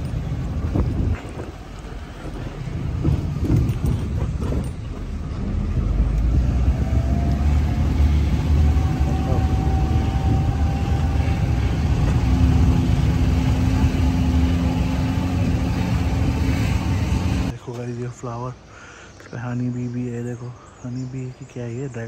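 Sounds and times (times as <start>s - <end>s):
wind on microphone: 0.0s - 1.8s, 5.9s - 14.0s
low rumble of moving cart: 0.0s - 18.6s.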